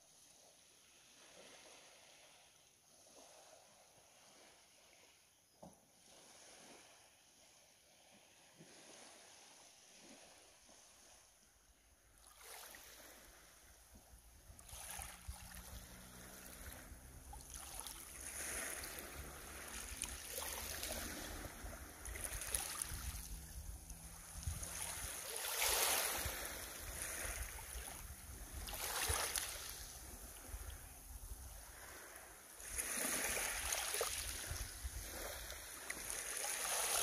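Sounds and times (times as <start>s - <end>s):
waves lapping on pebble beach: 0.0s - 5.3s, 6.0s - 37.0s
wind rumble on microphone: 18.0s - 36.9s.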